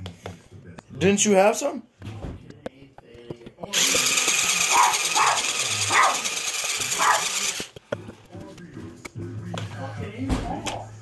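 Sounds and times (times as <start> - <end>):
toy robot motor whirring: 3.7 - 7.8.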